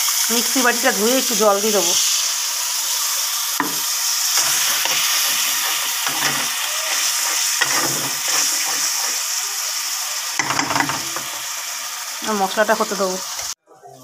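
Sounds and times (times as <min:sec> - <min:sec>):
masala sizzling in a pan: 0:00.0 - 0:13.6
metal spatula scraping and stirring: 0:03.6 - 0:09.6, 0:10.4 - 0:11.6.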